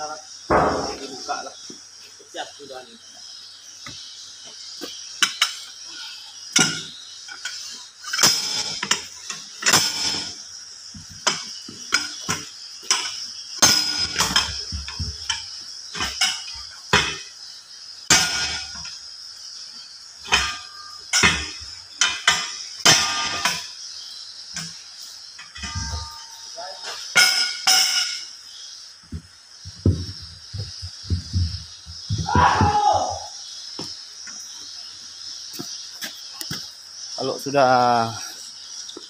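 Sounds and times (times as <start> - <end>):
high background hiss: 0.0 - 39.0
metal bars clanking on wheel rim: 0.5 - 1.4, 6.6 - 10.4, 11.2 - 17.2, 18.1 - 19.0, 20.2 - 23.8, 25.4 - 28.3.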